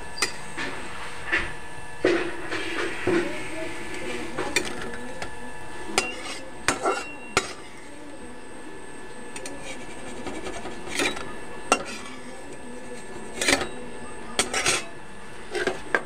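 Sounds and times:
metal ladle clinking and scraping: 0:06.0 - 0:07.7, 0:09.4 - 0:12.2, 0:14.4 - 0:14.9.

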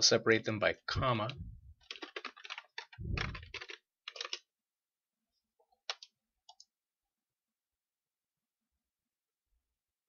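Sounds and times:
computer keyboard typing: 0:01.8 - 0:04.5, 0:05.8 - 0:06.7.

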